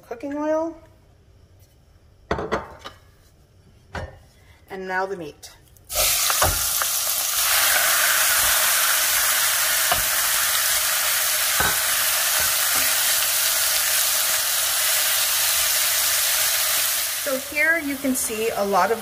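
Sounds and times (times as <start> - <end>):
meat sizzling in hot oil: 5.9 - 19.0.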